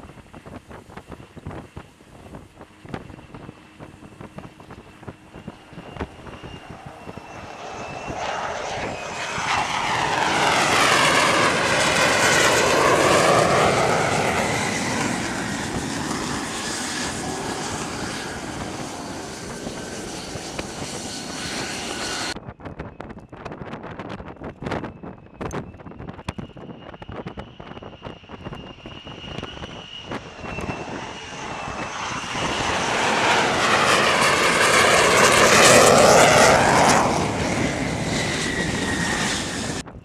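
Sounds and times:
jet engine roar: 0.0s - 22.4s, 25.9s - 40.0s
jet passing with sweeping hiss: 3.6s - 22.4s, 29.6s - 39.8s.

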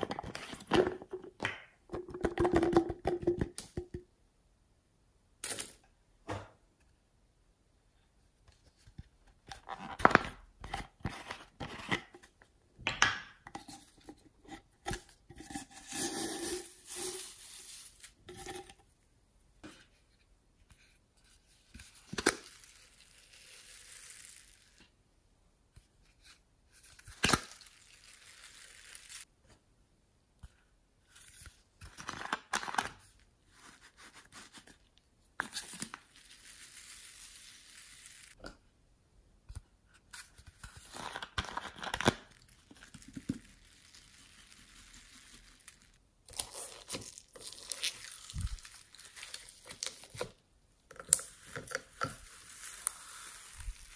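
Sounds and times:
foam beads pouring hiss: 16.0s - 18.2s, 22.5s - 24.8s, 27.4s - 29.3s, 36.2s - 38.4s, 43.4s - 46.0s, 52.2s - 53.9s.

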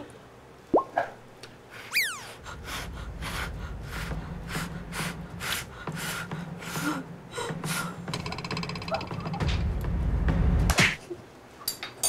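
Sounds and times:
quick huffing breaths: 1.7s - 8.1s
falling whistle: 1.9s - 2.4s.

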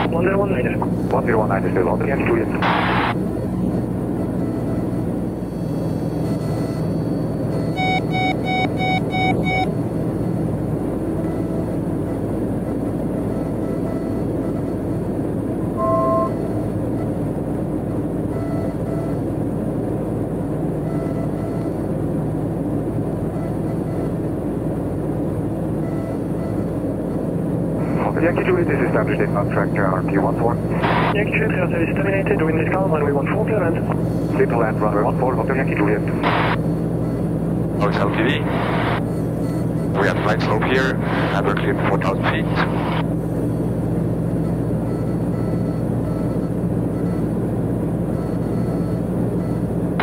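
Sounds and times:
aircraft engine and propeller droning: 0.0s - 50.0s
two-tone beep: 4.4s - 9.7s, 15.8s - 17.1s
short electronic beeps: 4.4s - 9.8s, 15.8s - 17.2s.

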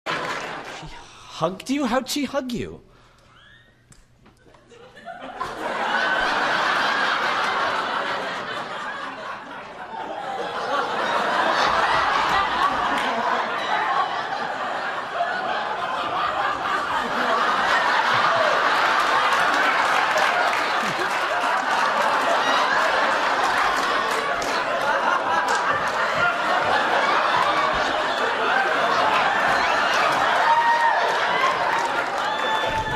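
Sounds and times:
studio audience laughing: 0.1s - 1.0s, 4.4s - 32.6s.

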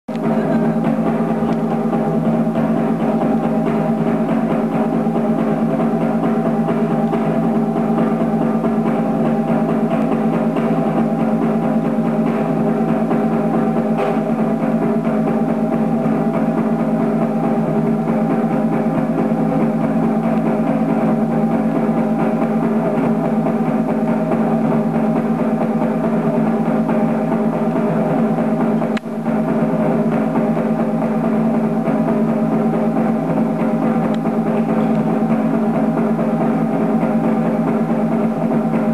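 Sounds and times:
drum roll: 0.1s - 38.9s.

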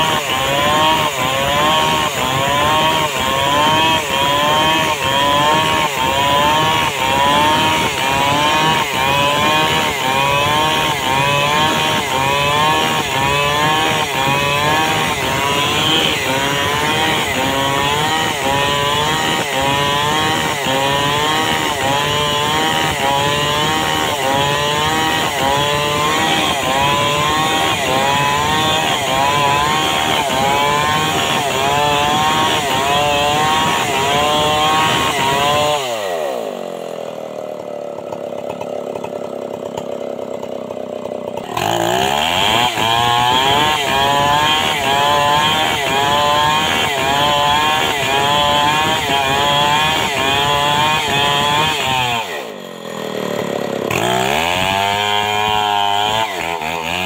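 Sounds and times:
chainsaw ripping a log: 0.0s - 57.0s.

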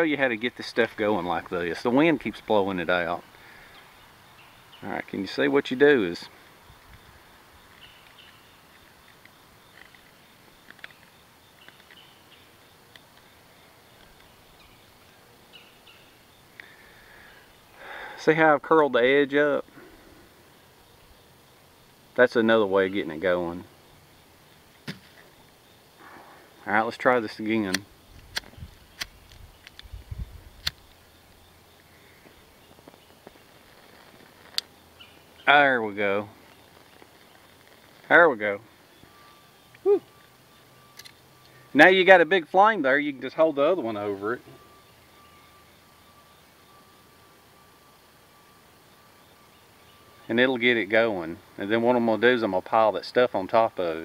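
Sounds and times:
bird chirps: 0.3s - 18.2s, 28.4s - 51.6s
lighter spark wheel clicks: 27.7s - 29.9s
wind rumble on microphone: 28.1s - 30.7s.

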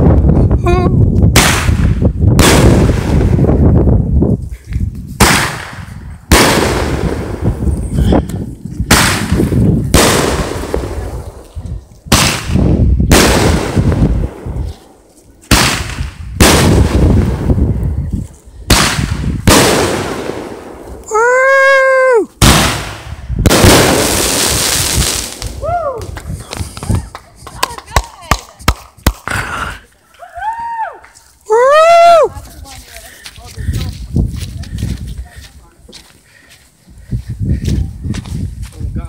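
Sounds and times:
fireworks bangs: 1.3s - 3.7s, 5.2s - 8.0s, 8.8s - 18.0s, 18.6s - 21.1s, 22.4s - 29.2s.

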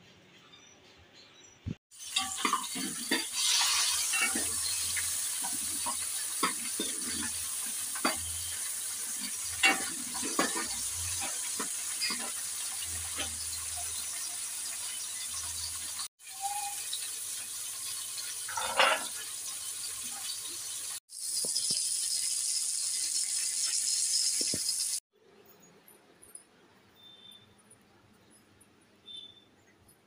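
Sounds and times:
vegetables sizzling in a pan: 1.9s - 25.0s
steel spoon scraping a pan: 2.0s - 13.9s, 18.5s - 19.2s.

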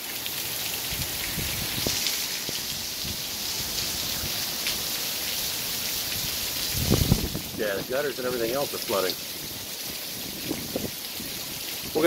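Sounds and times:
heavy rain: 0.0s - 12.0s.

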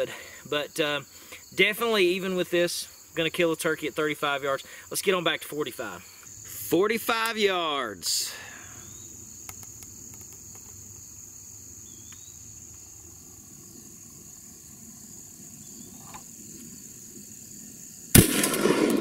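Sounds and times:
insect chirring: 0.0s - 19.0s
shotgun blast: 18.1s - 19.0s.

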